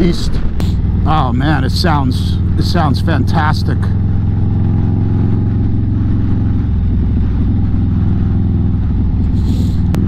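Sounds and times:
motorcycle engine cruising: 0.0s - 10.0s.

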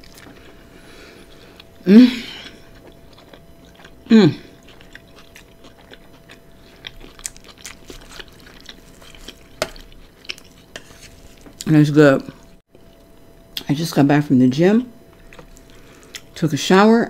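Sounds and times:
mouth chewing food: 0.0s - 11.7s
person humming: 1.8s - 2.5s, 4.1s - 4.6s.

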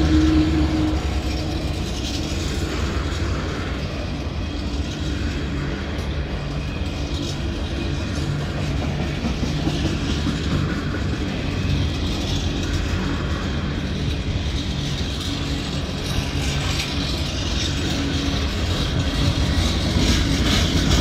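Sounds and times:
train wheels clattering on rails: 0.0s - 21.0s.

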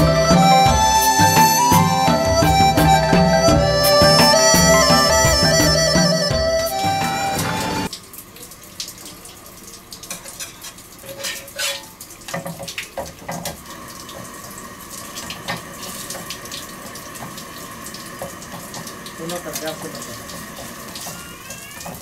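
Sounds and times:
music: 0.0s - 7.9s
metal spatula scraping pan: 10.4s - 12.0s.

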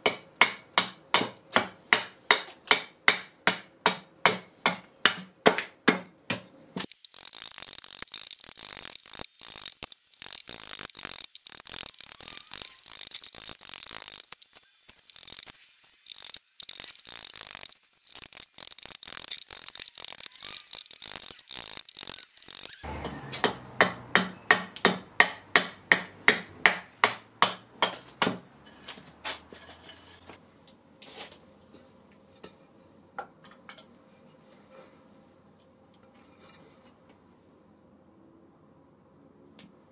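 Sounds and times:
hatchet chopping wood: 0.0s - 7.0s, 22.9s - 28.5s.

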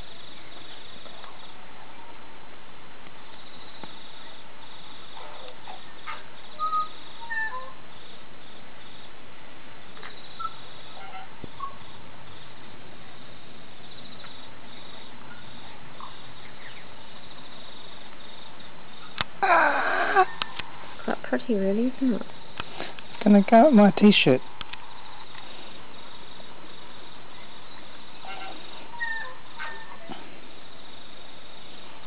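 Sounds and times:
steady hiss: 0.0s - 32.0s
beetle squeaks: 3.4s - 7.8s, 19.0s - 20.6s, 27.3s - 30.0s.

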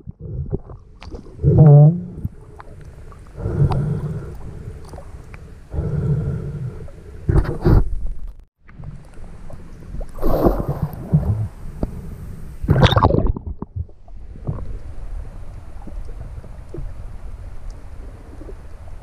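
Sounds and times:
dull underwater rumble: 0.0s - 19.0s
water sloshing and splashing: 7.3s - 11.9s.

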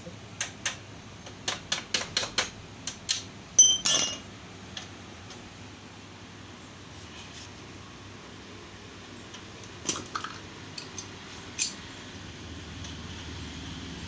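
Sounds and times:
metal tools clicking and tapping: 0.4s - 4.9s, 10.1s - 11.8s
metallic clatter with ring: 3.6s - 4.3s.

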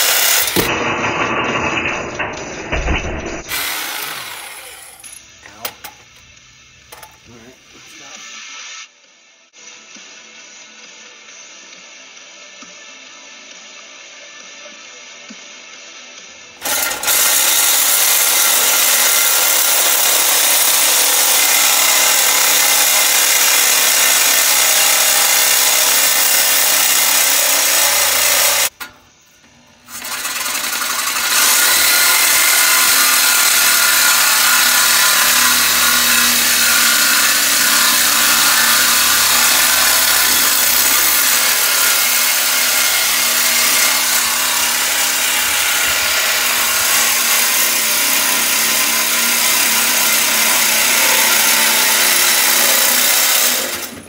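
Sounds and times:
reciprocating saw cutting metal: 0.0s - 6.0s, 16.6s - 28.9s, 29.7s - 54.0s.

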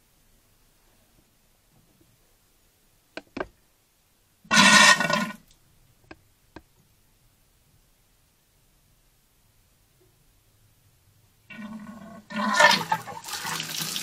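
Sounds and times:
water running: 11.5s - 14.0s.

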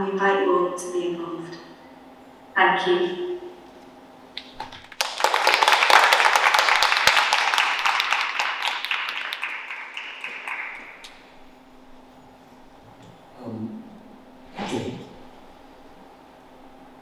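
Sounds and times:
applause: 4.6s - 11.2s.

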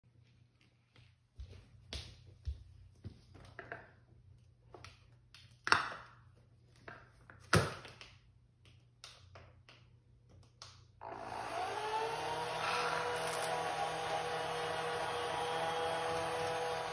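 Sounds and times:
electric mop motor whining: 11.0s - 16.9s.

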